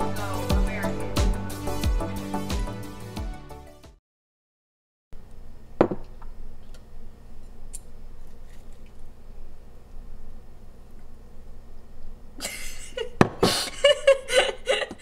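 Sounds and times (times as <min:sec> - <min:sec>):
background music: 0:00.0 - 0:04.0.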